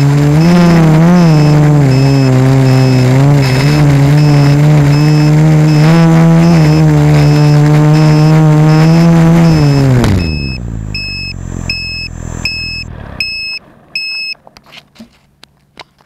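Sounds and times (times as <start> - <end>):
drone motors humming: 0.0 - 14.4
short electronic beeps: 0.3 - 14.4.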